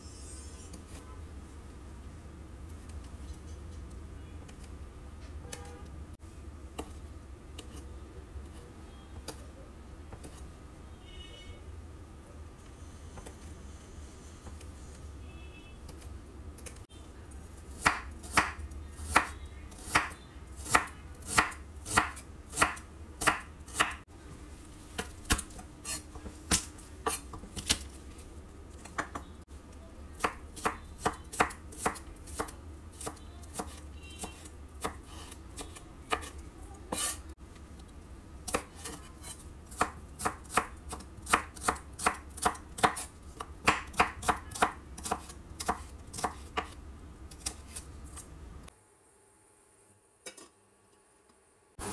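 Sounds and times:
knife chopping on wooden board: 0:17.8 - 0:24.0, 0:38.5 - 0:46.8.

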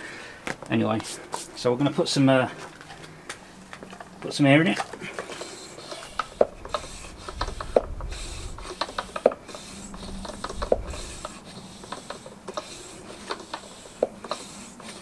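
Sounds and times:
hand air pump strokes: 0:04.7 - 0:15.0.

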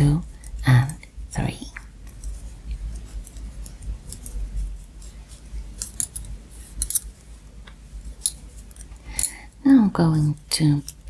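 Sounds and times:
yarn and hands handling: 0:00.2 - 0:09.3.

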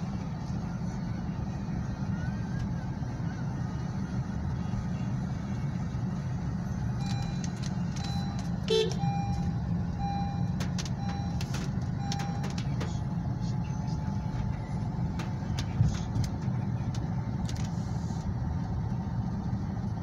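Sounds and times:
engine and tyres on wet road: 0:00.0 - 0:20.0
short beeps: 0:07.0 - 0:07.4, 0:08.0 - 0:11.4.

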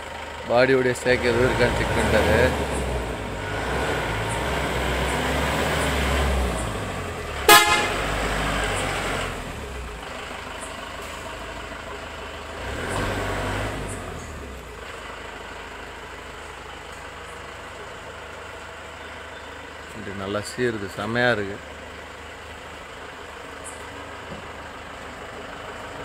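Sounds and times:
diesel bus engine: 0:00.0 - 0:26.0
air horn blast: 0:07.4 - 0:08.3.

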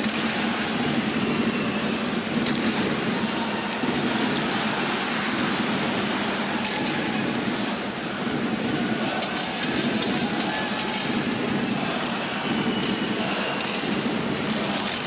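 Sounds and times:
arena crowd noise: 0:00.0 - 0:15.0.

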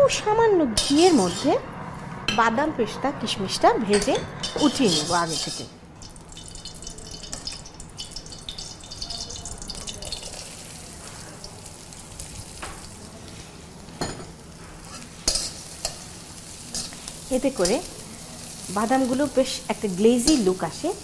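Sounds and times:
nuts sizzling in a pan: 0:00.8 - 0:02.0, 0:03.8 - 0:21.0
spatula scraping a pan: 0:03.9 - 0:05.7.

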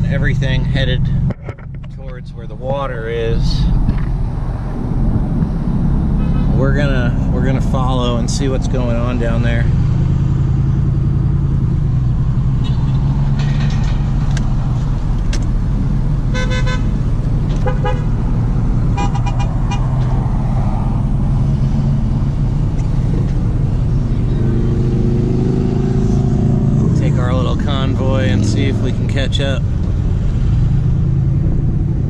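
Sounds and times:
vehicle engine and road rumble: 0:00.0 - 0:32.0
car horn toots: 0:06.2 - 0:06.6, 0:16.3 - 0:18.2, 0:18.9 - 0:19.9.

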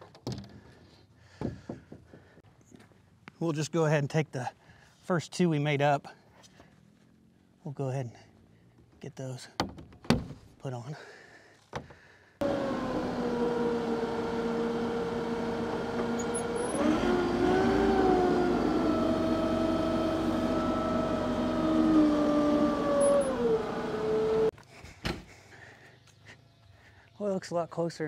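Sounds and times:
tractor engine running: 0:12.4 - 0:24.5.

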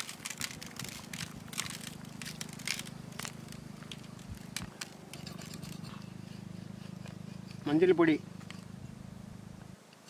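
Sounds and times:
salt crystals ticking on tray: 0:00.0 - 0:05.6
low steady hum: 0:00.0 - 0:10.0.

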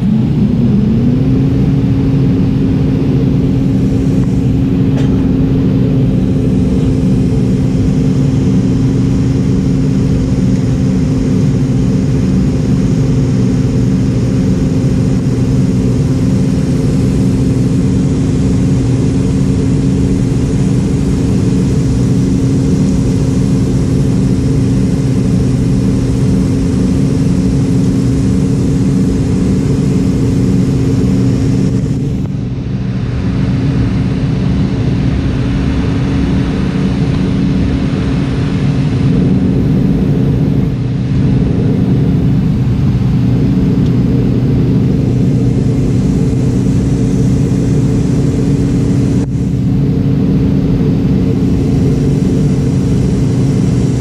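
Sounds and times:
airplane cabin engine drone: 0:00.0 - 0:54.0
rushing air: 0:00.0 - 0:54.0.

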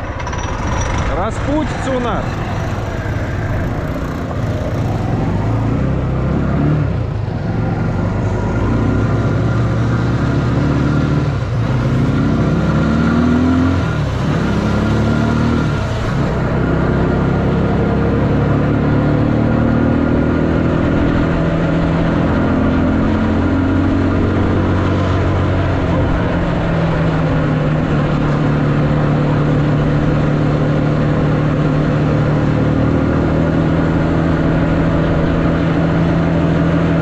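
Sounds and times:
tricycle engine revving: 0:00.0 - 0:27.3.

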